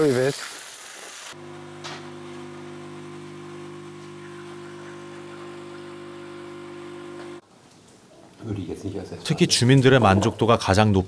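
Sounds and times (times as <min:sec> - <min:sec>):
espresso machine pump humming: 0:01.3 - 0:07.4.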